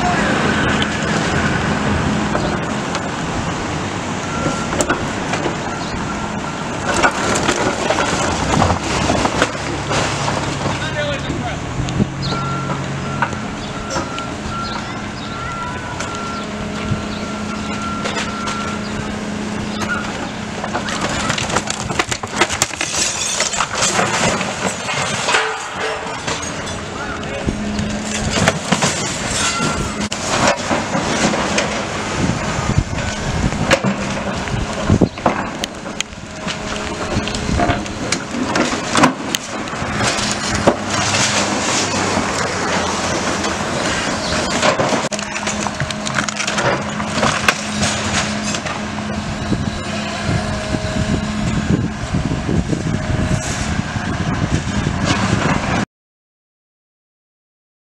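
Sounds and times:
excavator diesel engine running: 0:00.0 - 0:55.8
bricks and timber crashing down: 0:06.8 - 0:11.1, 0:20.6 - 0:27.2, 0:27.9 - 0:49.0.

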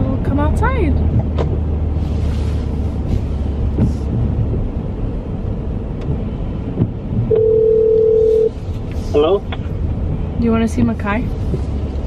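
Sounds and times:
car road and engine rumble: 0:00.0 - 0:12.0
telephone ringback tone: 0:07.3 - 0:08.5.

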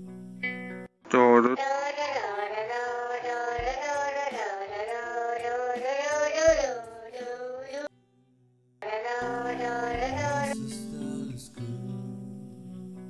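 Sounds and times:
high-pitched singing voice: 0:01.4 - 0:07.9, 0:08.8 - 0:12.1
light music: 0:09.1 - 0:13.0.

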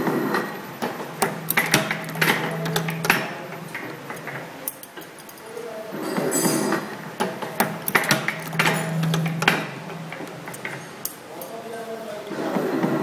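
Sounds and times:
low machine hum: 0:00.0 - 0:11.6
machine punches clacking on metal: 0:00.4 - 0:04.4, 0:06.4 - 0:11.2.

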